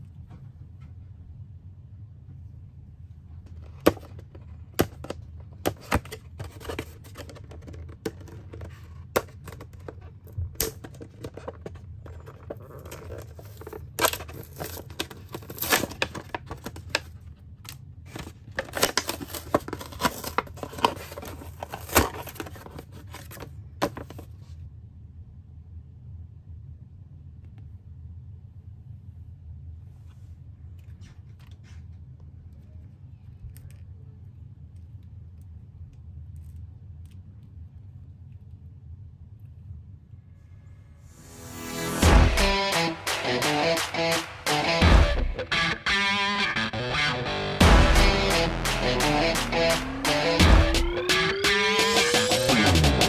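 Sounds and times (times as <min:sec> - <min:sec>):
low steady hum: 0:00.0 - 0:51.0
plastic packaging crinkling: 0:03.8 - 0:24.3.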